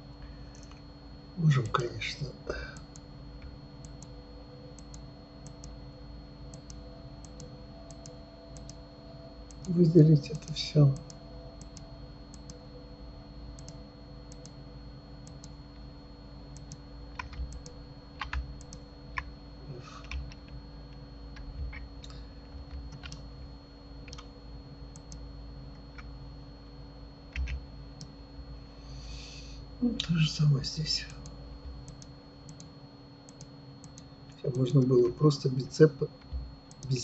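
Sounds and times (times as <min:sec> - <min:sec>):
faint electrical hum: 0:00.0 - 0:37.0
computer mouse and keyboard clicks: 0:21.4 - 0:23.2, 0:27.3 - 0:28.1.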